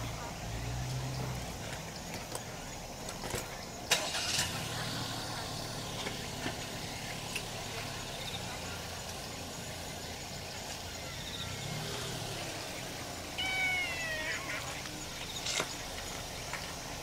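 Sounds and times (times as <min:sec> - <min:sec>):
kitten meowing: 0:13.3 - 0:14.8.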